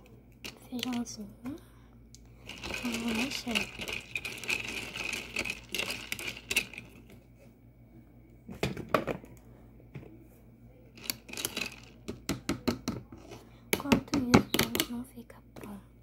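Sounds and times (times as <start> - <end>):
spoon stirring in toy pot: 2.4 - 7.1.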